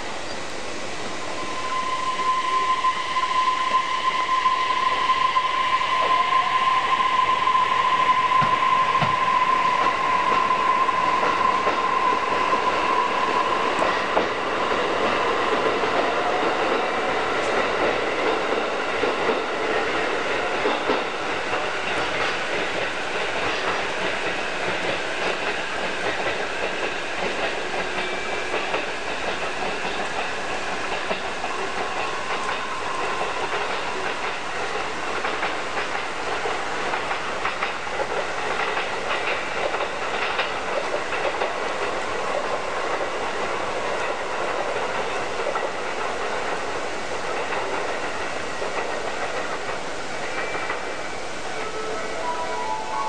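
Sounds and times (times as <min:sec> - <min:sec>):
steady high tone: 0:01.0 - 0:15.4, 0:50.3 - 0:53.0
train wheels clacking on rails: 0:01.5 - 0:53.0.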